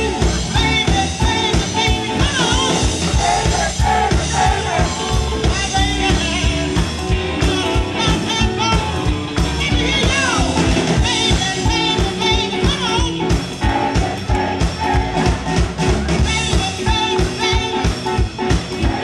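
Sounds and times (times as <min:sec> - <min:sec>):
woman singing: 0:00.0 - 0:03.5, 0:05.5 - 0:06.8, 0:09.6 - 0:13.3
bass guitar: 0:00.0 - 0:19.0
drums steady beat: 0:00.0 - 0:19.0
electric guitars: 0:00.0 - 0:19.0.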